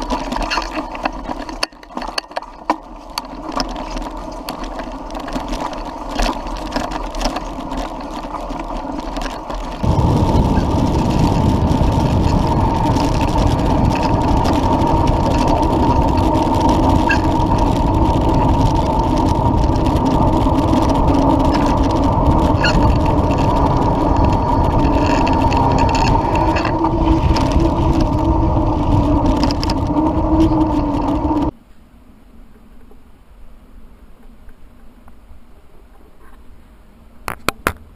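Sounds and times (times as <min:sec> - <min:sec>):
bike rattles and clicks: 0:00.0 - 0:31.6
tyre hum: 0:00.0 - 0:31.8
wind buffeting microphone: 0:03.5 - 0:31.5.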